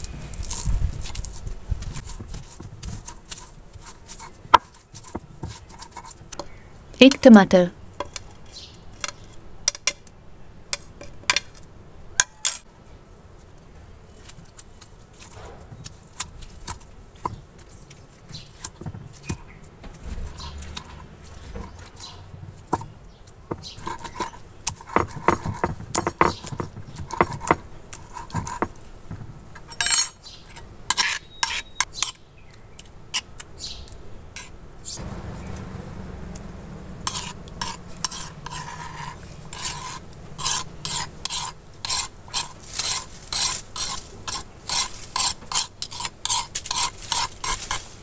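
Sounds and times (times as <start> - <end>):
grinding stone knocking and scraping: 15.2 - 30.2, 36.3 - 47.9
metal spoon scraping stone: 23.6 - 28.7, 37.0 - 47.9.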